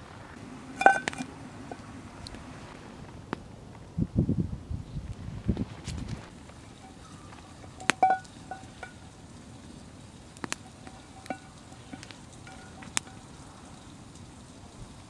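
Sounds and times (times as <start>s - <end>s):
campfire crackling: 0.0s - 15.0s
faint hiss: 0.0s - 15.0s
fire popping: 0.0s - 15.0s
frying pan clinking: 0.5s - 2.3s, 6.4s - 14.8s.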